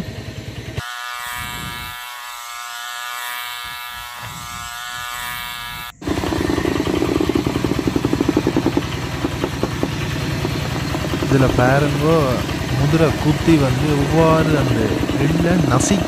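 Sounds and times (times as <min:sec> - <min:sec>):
diesel engine chugging: 0:00.0 - 0:00.8, 0:06.0 - 0:16.0.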